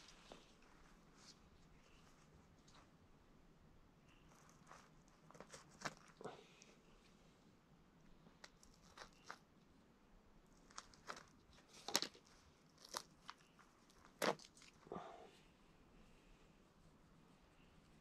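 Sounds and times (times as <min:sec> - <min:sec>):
skin and feathers tearing: 0:10.7 - 0:14.8.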